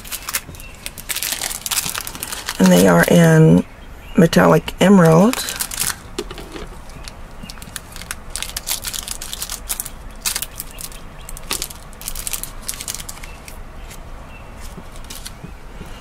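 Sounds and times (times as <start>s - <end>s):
plastic bag crinkling: 0.0s - 3.2s, 5.0s - 13.6s, 14.6s - 15.4s.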